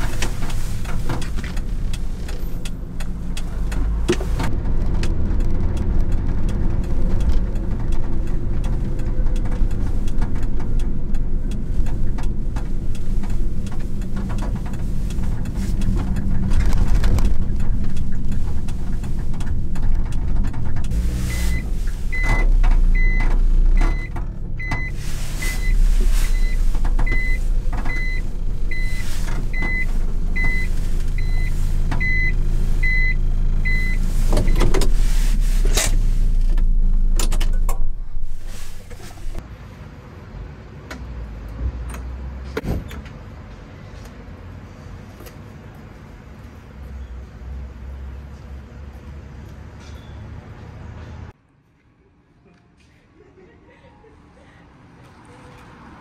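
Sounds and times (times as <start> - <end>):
truck engine running: 0.0 - 39.4
road rumble: 0.0 - 56.0
reversing warning beeper: 21.2 - 34.6.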